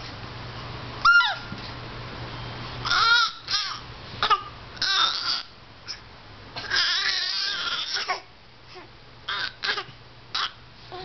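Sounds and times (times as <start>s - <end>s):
baby squealing: 1.0s - 1.5s, 2.8s - 6.0s, 6.6s - 8.2s, 9.3s - 10.6s
baby pretend coughing: 9.6s - 10.6s.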